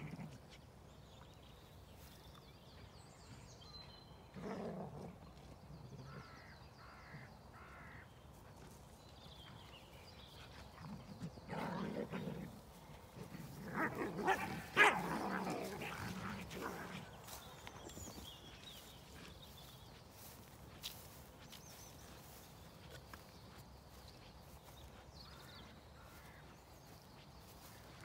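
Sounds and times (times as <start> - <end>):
small birds singing: 0.0 - 28.0
crows cawing: 6.1 - 8.0
dog barking: 13.9 - 15.2.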